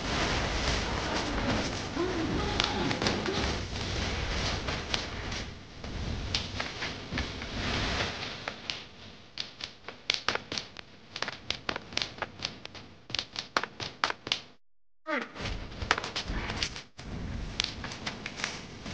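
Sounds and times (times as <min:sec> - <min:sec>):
sharp clicks and taps: 0:08.5 - 0:14.6.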